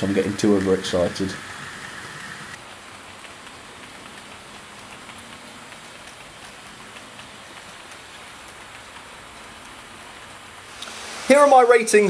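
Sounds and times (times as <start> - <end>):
model train wheels hissing on rail: 0.0 - 2.6, 10.7 - 12.0
light irregular ticks: 3.0 - 10.9.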